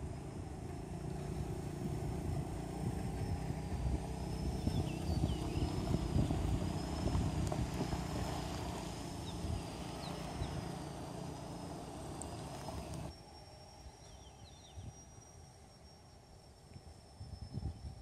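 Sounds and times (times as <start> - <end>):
engine rumbling: 0.0 - 13.8
thin steady high tone: 0.0 - 18.0.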